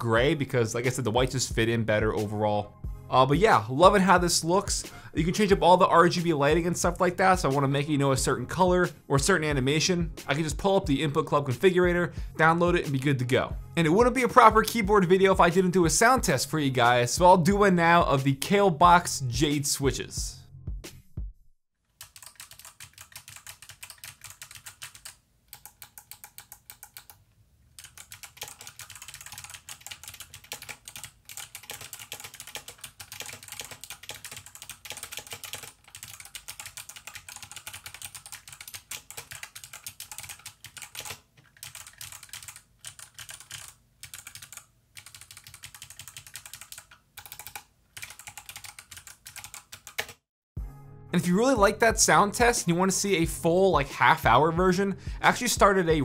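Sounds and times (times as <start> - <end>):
mechanical keyboard typing: 22.0 - 27.2, 27.8 - 50.2.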